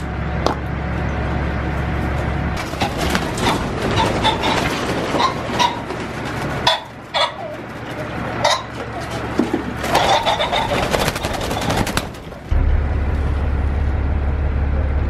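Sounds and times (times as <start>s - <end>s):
wing flutters: 2.6s - 12.5s.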